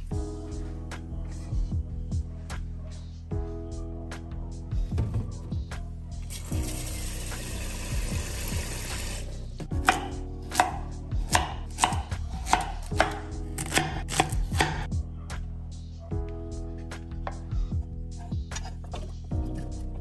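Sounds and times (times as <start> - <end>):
knife chopping on cutting board: 9.6 - 14.9.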